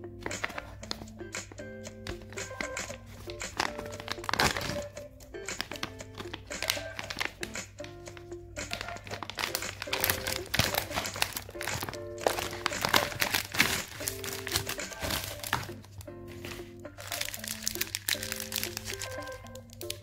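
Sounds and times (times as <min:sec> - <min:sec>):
background music: 0:00.0 - 0:20.0
plastic wrappers crinkling: 0:00.2 - 0:01.2, 0:02.0 - 0:20.0.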